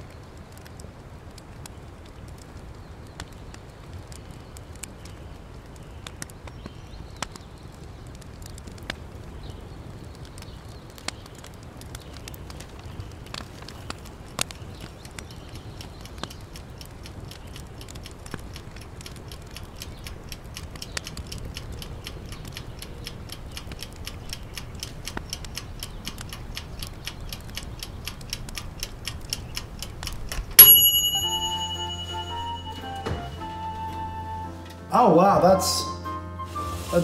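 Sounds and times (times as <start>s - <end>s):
timer ticking: 15.0s - 34.3s
timer ding: 30.6s - 34.0s.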